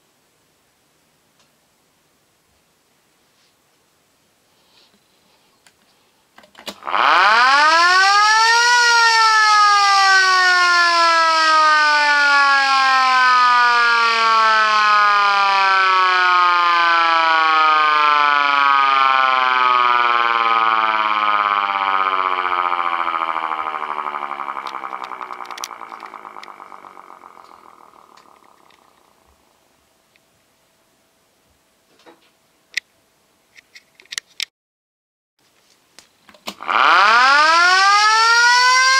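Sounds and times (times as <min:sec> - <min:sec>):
electric motor siren wailing: 0:06.8 - 0:29.4, 0:36.6 - 0:38.9.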